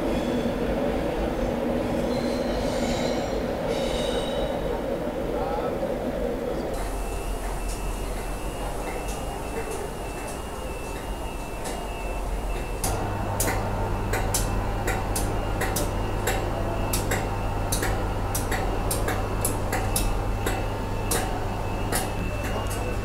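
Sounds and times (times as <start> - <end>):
electrical hum: 6.6 - 23.0.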